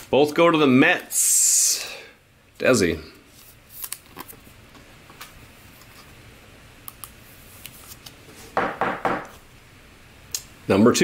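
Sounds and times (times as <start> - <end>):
trading cards being flipped: 3.3 - 6.2, 6.9 - 8.4.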